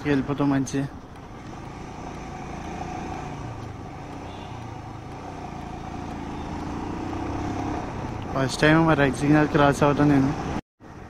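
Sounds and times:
motorcycle engine running: 1.0 - 8.9.

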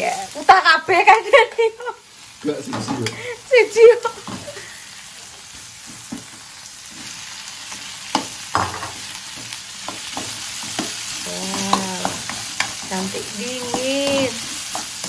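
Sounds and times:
stir-fry sizzling in a pan: 0.0 - 15.0
spatula knocking and scraping pan: 8.1 - 15.0.

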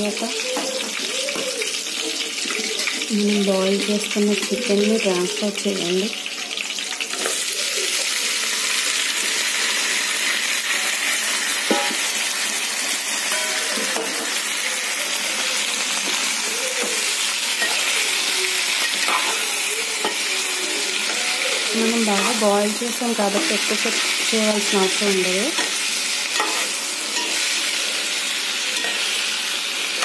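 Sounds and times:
chicken sizzling in hot oil: 0.0 - 30.0
spatula stirring: 16.0 - 27.9.

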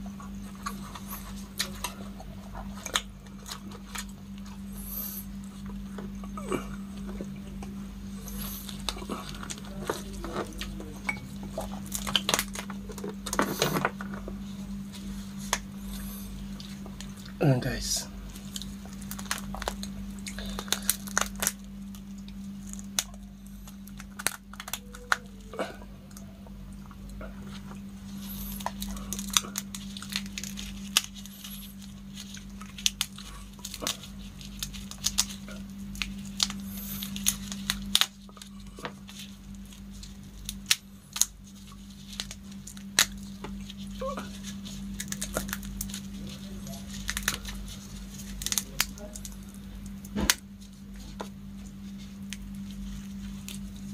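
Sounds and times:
low hum: 0.0 - 53.9
shrimp shells cracking: 8.3 - 14.2, 18.3 - 25.4, 28.5 - 50.5.

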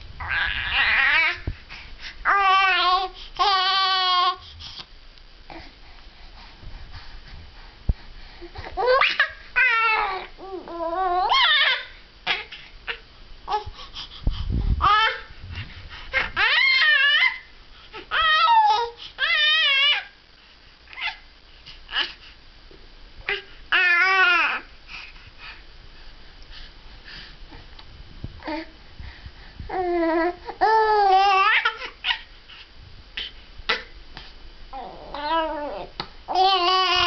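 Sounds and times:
baby cooing and babbling: 0.2 - 1.5, 2.3 - 4.4, 8.5 - 13.7, 18.0 - 20.1, 23.3 - 24.7, 29.7 - 32.3, 34.7 - 37.0.

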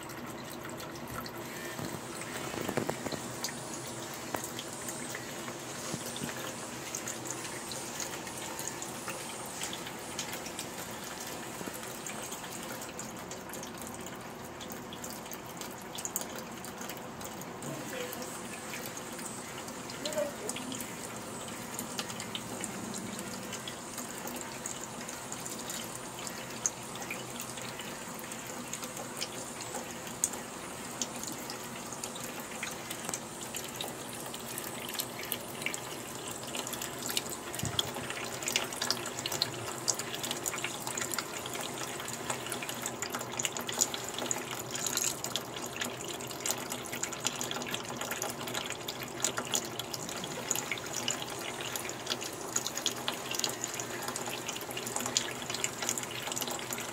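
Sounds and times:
water splashing and dripping: 0.0 - 56.9
tap running into sink: 1.0 - 10.6, 37.0 - 41.7.

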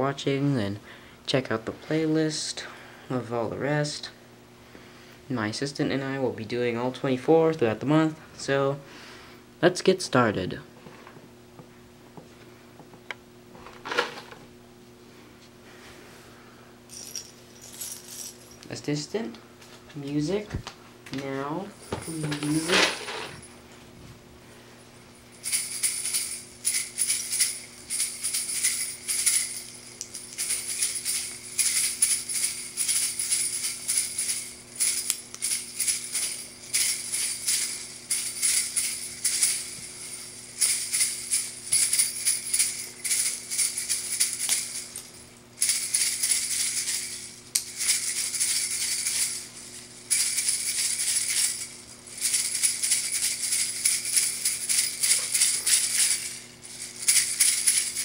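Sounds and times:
shaker-like percussion music: 25.4 - 58.0.

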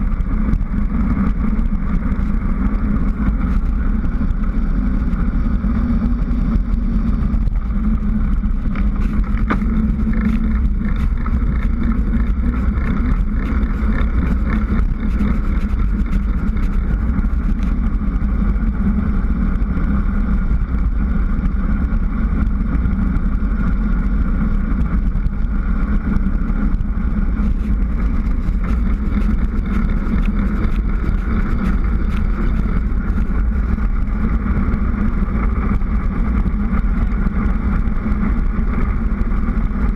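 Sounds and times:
tyres rumbling on tarmac: 0.0 - 39.9
wind buffeting camera: 0.0 - 39.9
small ticks and knocks: 8.3 - 17.8.

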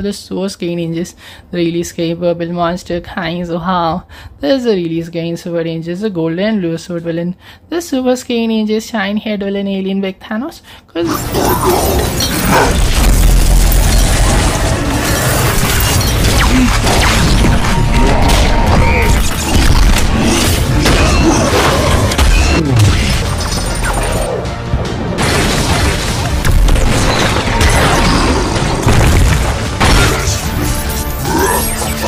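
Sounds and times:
dramatic music: 11.0 - 32.0
energy blast effects: 11.1 - 24.3
booms and crashing impacts: 12.1 - 23.9, 24.7 - 30.8.

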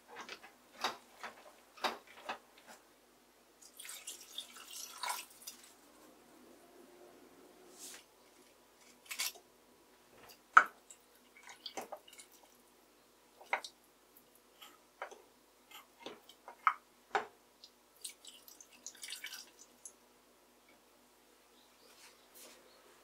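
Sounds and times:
liquid pouring into pot: 3.6 - 5.7.

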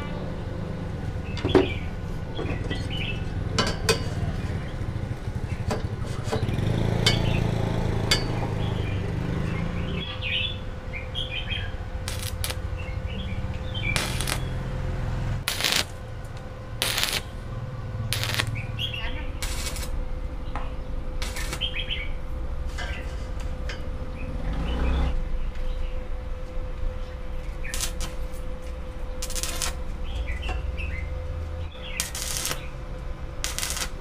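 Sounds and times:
steady low hum: 0.0 - 34.0
birds chirping: 1.2 - 3.6, 8.2 - 15.0, 17.2 - 22.2, 29.1 - 32.8
welding arc crackling: 12.0 - 20.0, 21.2 - 22.0, 27.5 - 28.3, 29.2 - 29.9, 31.8 - 34.0.

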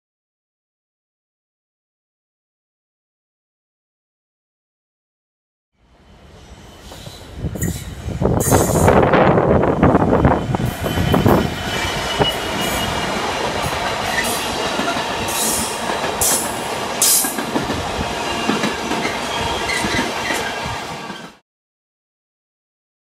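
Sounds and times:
diesel locomotive passing: 5.8 - 21.4
high wheel squeals: 10.1 - 13.4, 18.2 - 21.4.

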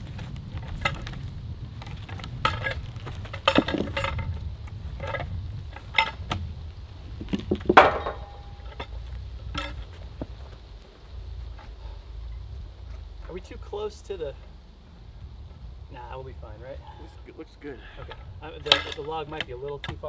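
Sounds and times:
steady low rumble: 0.0 - 20.0
metal hook clinking on log: 18.0 - 20.0.

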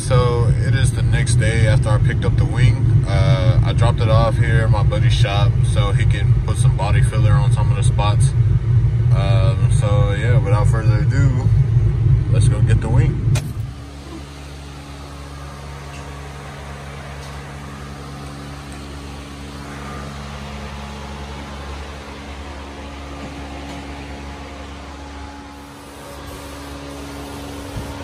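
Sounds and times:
motor humming: 11.2 - 28.0.

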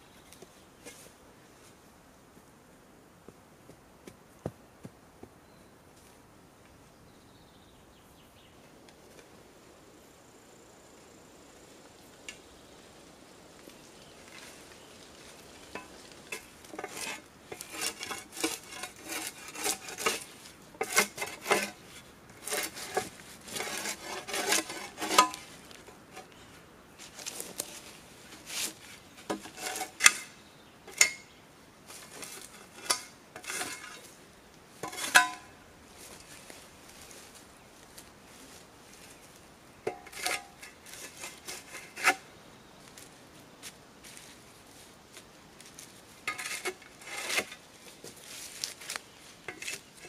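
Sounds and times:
shovel scraping bark off log: 15.8 - 25.6, 27.1 - 31.2, 31.9 - 34.1, 34.8 - 35.5, 46.3 - 47.6.

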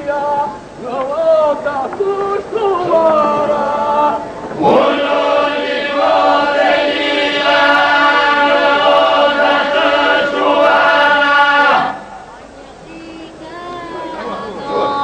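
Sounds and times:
men's group singing: 2.2 - 12.1.

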